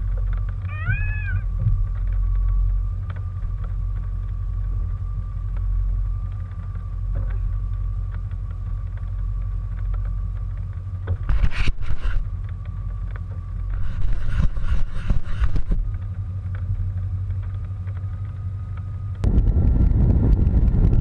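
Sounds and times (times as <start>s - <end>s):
car engine idling: 0.0s - 11.4s.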